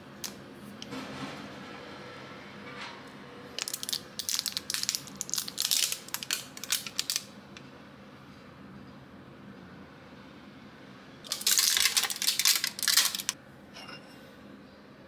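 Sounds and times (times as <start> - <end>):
plastic tray crackling: 3.6 - 7.3, 11.3 - 13.4.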